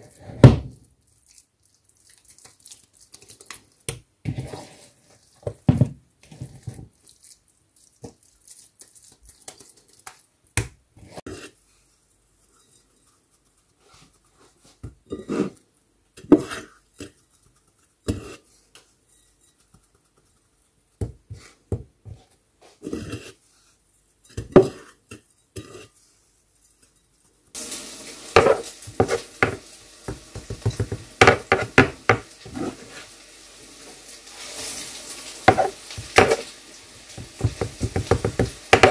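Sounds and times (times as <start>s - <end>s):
wet hands patting minced fish: 1.0s - 4.5s, 6.5s - 10.8s, 28.4s - 32.6s, 35.5s - 36.5s, 37.1s - 38.9s
steady hiss: 27.6s - 38.9s.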